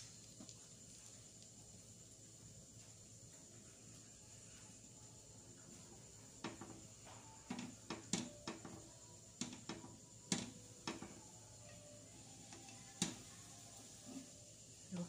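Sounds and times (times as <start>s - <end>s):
spatula tapping frying pan: 6.4s - 14.0s.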